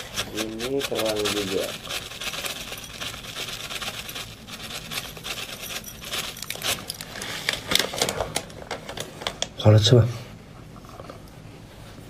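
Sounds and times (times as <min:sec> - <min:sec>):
seasoning granules sprinkling: 0:00.0 - 0:07.1.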